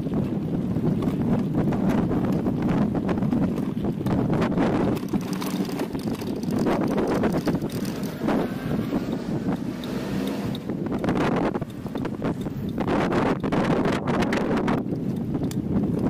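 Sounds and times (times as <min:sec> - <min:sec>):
scooter tyres on wet cobblestones: 0:00.0 - 0:12.8
wind buffeting microphone: 0:00.0 - 0:16.0
rattle and bumping: 0:03.1 - 0:09.9.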